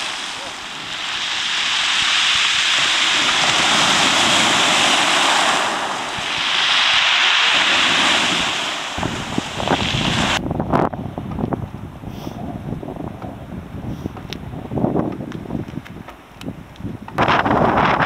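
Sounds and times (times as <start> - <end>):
surf washing over pebbles: 0.0 - 10.4
wind buffeting microphone: 0.0 - 18.0.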